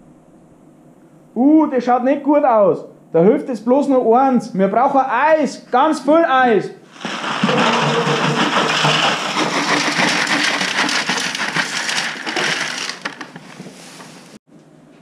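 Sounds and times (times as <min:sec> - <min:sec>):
ice clattering into metal tub: 0:06.9 - 0:14.2.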